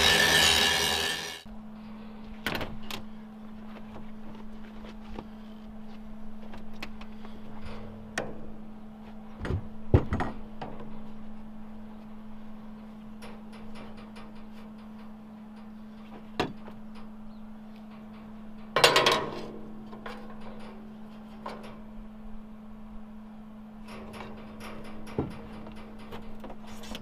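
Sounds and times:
low hum: 0.0s - 27.0s
metal clatter: 17.9s - 21.9s.

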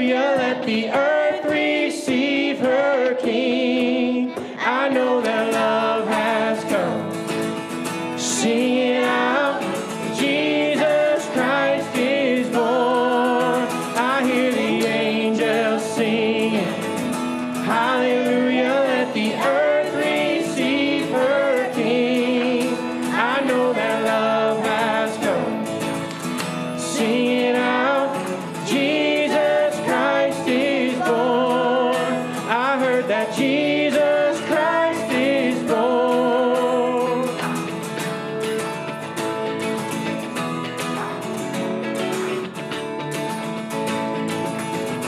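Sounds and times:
man and woman singing: 0.0s - 7.4s, 8.0s - 37.9s
keyboard: 0.0s - 45.0s
strummed acoustic guitar: 0.0s - 45.0s.

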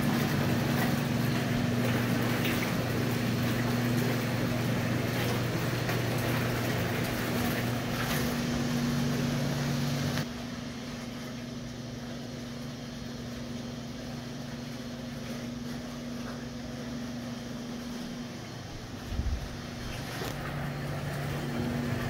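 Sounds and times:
bathtub pump motor humming: 0.0s - 22.0s
jets churning water: 0.0s - 22.0s.

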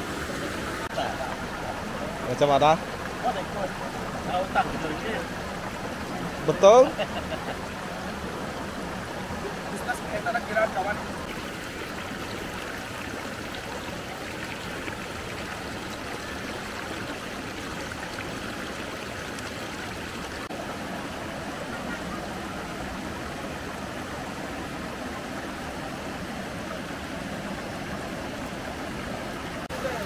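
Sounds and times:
river water flowing: 0.0s - 30.0s.

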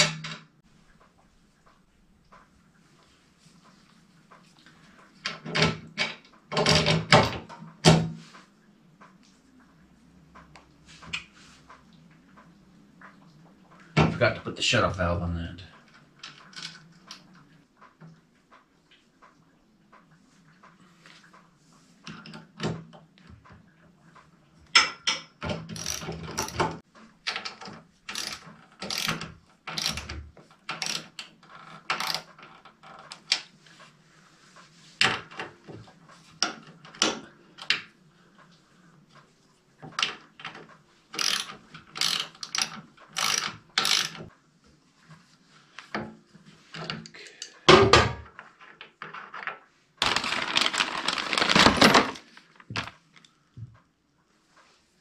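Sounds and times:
metal clicks of hand tools: 24.8s - 31.3s, 40.0s - 44.3s.

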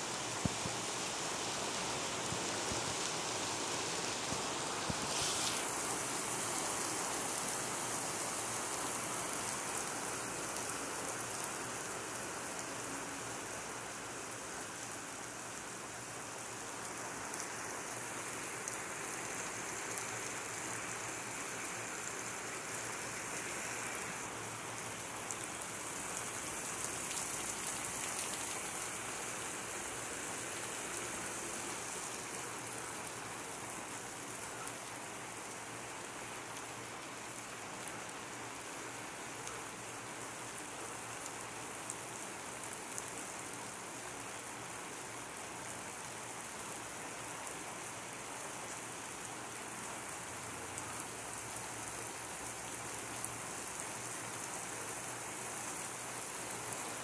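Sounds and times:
heavy rain on pavement and roofs: 0.0s - 57.0s
raindrop ticks: 26.9s - 28.9s.

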